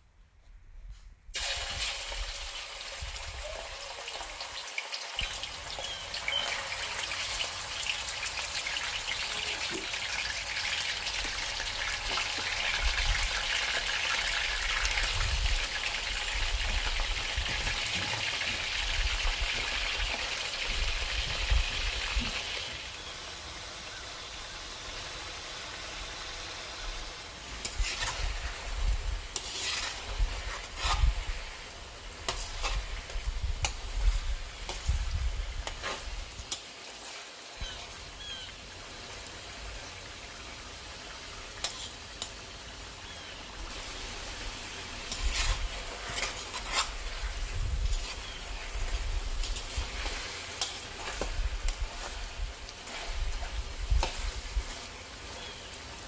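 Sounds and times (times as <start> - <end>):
chicken sizzling in hot oil: 1.3 - 56.0
spatula stirring: 27.4 - 36.7, 41.6 - 42.0, 43.7 - 55.6.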